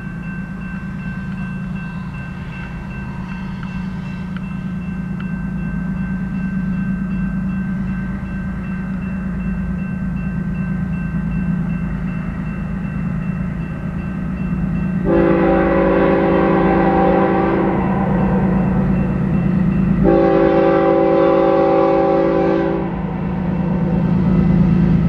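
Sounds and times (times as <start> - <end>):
railroad crossing bell: 0.0 - 25.0
train air horn chord: 15.0 - 19.0, 20.0 - 24.0.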